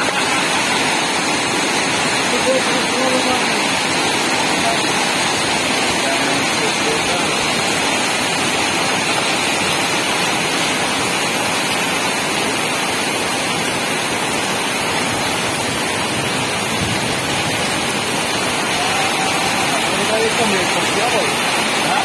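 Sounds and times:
floodwater rushing: 0.0 - 22.0
heavy rain pouring: 0.0 - 22.0.

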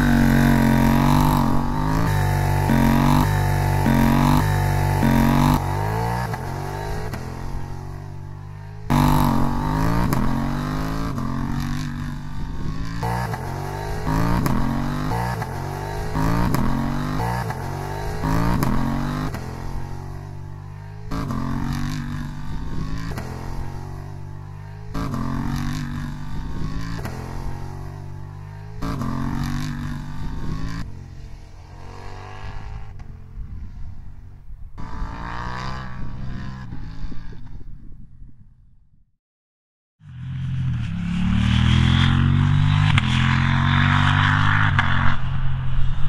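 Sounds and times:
motorcycle engine accelerating: 0.0 - 39.0, 40.0 - 46.0.

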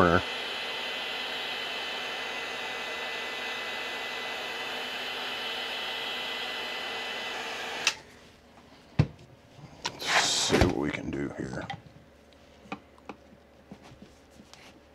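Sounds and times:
heat gun blowing: 0.0 - 8.0
heat gun switch click: 7.8 - 8.0.

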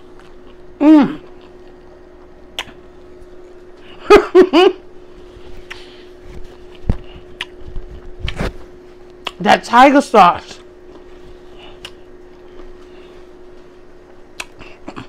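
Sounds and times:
steady low hum: 0.0 - 15.0
woman humming while chewing: 0.5 - 1.8, 14.3 - 15.0.

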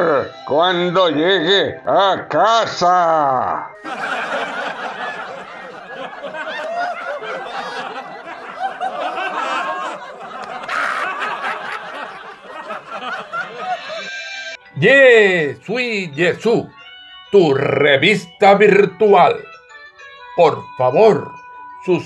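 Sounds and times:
large audience laughing: 3.8 - 14.4.

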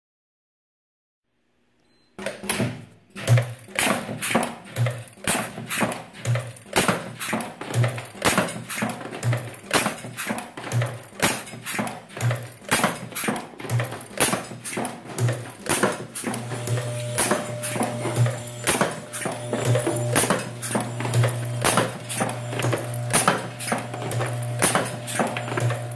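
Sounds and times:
machine metallic clacks: 2.4 - 25.9.

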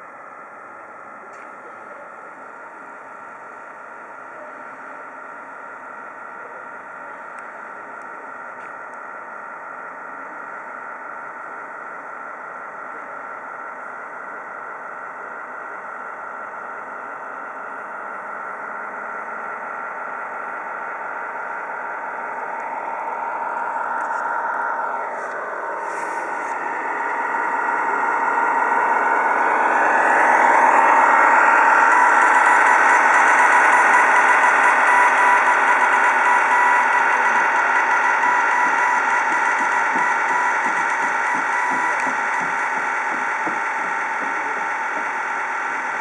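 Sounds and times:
model ship engine hum: 0.0 - 46.0.

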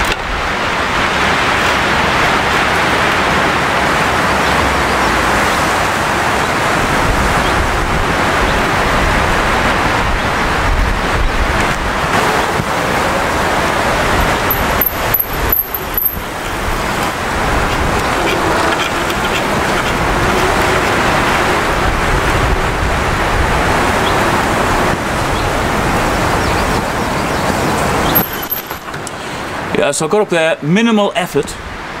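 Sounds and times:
road traffic noise: 0.0 - 32.0.

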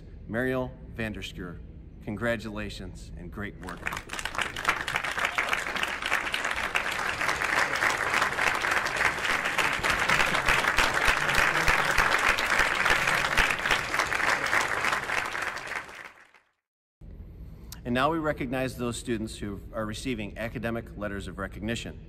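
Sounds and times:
crowd applauding: 3.6 - 16.6.

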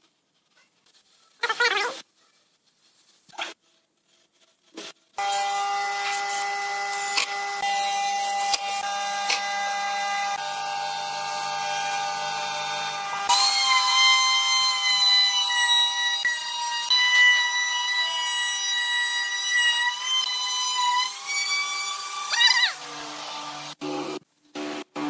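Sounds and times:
power tool motor whine: 5.2 - 18.6
electric router cutting wood: 5.2 - 25.0.

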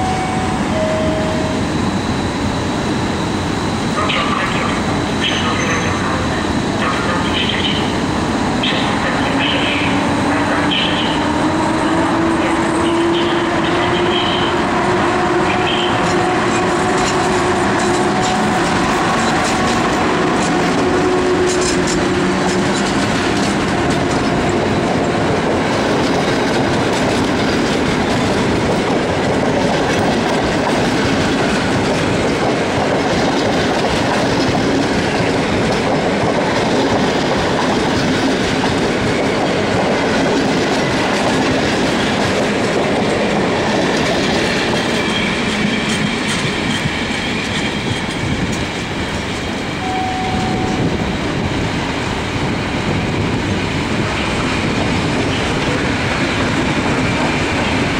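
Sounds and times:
locomotive hum: 0.0 - 57.9
train wheels rumbling: 0.0 - 57.9
clickety-clack over rail joints: 15.5 - 49.8, 50.8 - 57.9.

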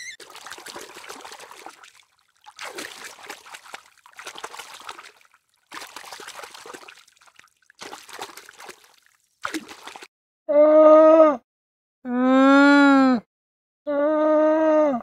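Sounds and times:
fish splashing water: 0.0 - 10.1.

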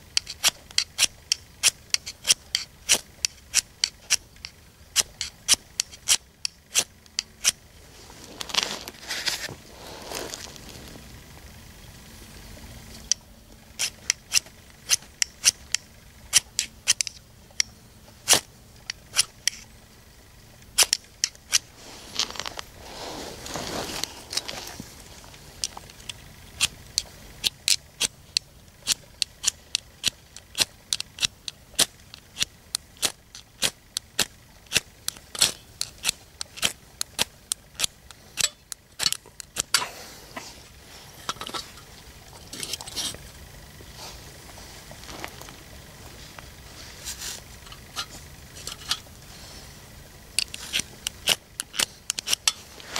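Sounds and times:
firesteel scraping rasps: 0.0 - 11.4, 20.8 - 52.9.

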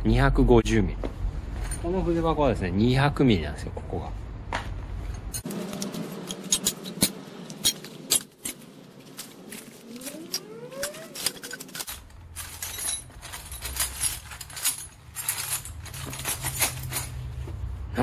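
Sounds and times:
metal hand tools clinking: 5.2 - 17.3
rising squeak: 9.6 - 11.9.

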